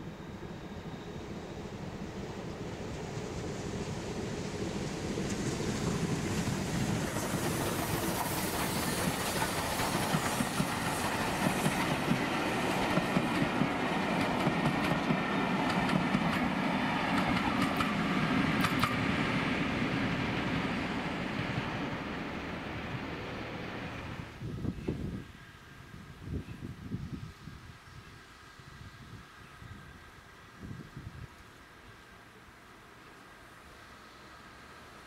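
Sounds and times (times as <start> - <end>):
steam train running past: 0.0 - 26.1, 31.6 - 35.0
wheels clicking over rail joints: 17.1 - 19.0.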